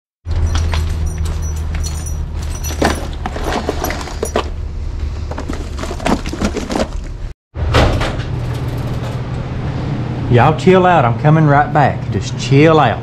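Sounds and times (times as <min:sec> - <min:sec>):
hands rummaging through gear: 0:00.6 - 0:04.6, 0:05.2 - 0:07.2.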